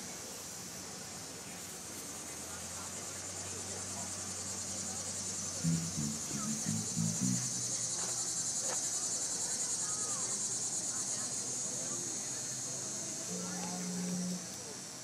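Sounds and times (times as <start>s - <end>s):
insects trilling: 2.6s - 15.0s
low hum: 5.6s - 7.9s
short low tones: 5.6s - 7.9s, 13.3s - 14.5s.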